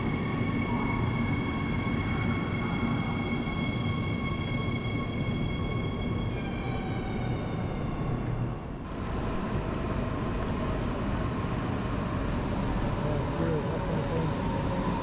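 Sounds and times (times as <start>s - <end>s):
train rumble: 0.0s - 15.0s.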